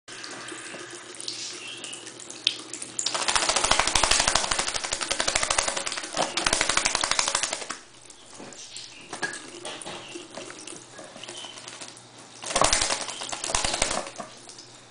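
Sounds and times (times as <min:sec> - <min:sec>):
tap water running into sink: 0:00.1 - 0:14.9
bird wings fluttering in water: 0:03.0 - 0:14.5.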